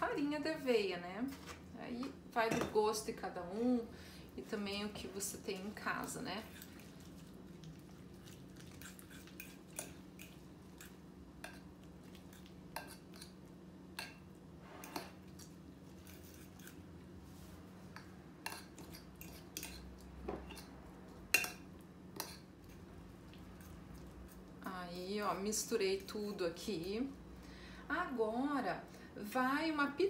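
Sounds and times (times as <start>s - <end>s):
faint steady hum: 0.0s - 30.0s
fork scraping on ceramic plate: 16.0s - 16.8s.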